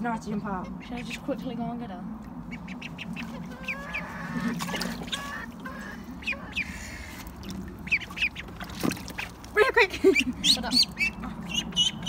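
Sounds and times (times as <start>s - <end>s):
ducklings and chickens peeping: 0.2s - 1.6s, 2.3s - 9.5s, 10.2s - 12.0s.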